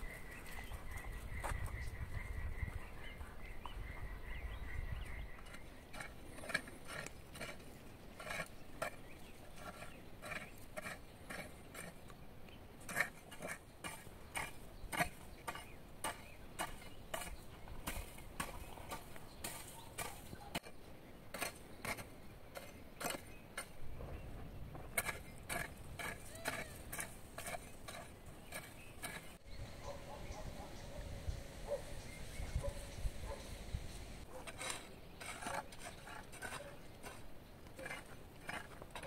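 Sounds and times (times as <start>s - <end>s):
garden hoe chopping into soil: 12.9s - 23.8s, 24.8s - 29.4s, 32.4s - 39.0s.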